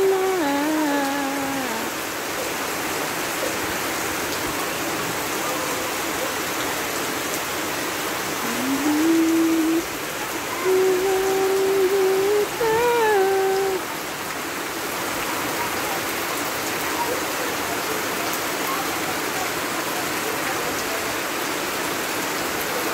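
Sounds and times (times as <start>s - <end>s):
person humming: 0.0s - 2.0s, 8.4s - 13.9s
rain on metal roofs: 0.0s - 22.9s.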